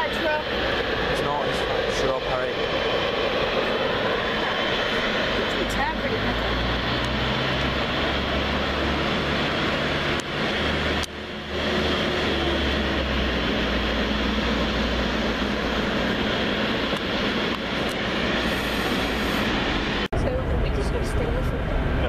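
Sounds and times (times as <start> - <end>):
jet engines taxiing: 0.0 - 22.0.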